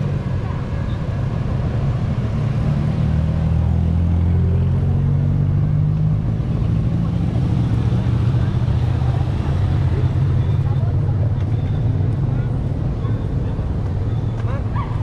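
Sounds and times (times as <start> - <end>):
vehicle engine humming: 0.0 - 15.0.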